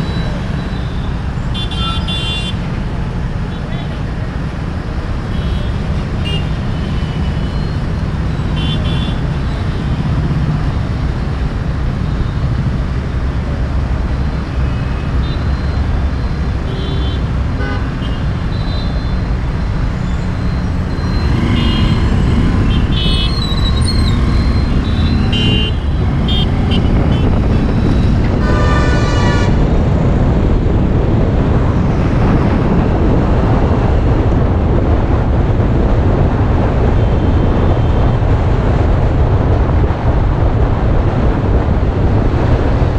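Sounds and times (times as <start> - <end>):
road and wind noise: 0.0 - 42.9
vehicle horns tooting: 1.5 - 2.6, 8.4 - 9.3, 16.7 - 19.3, 21.2 - 29.6.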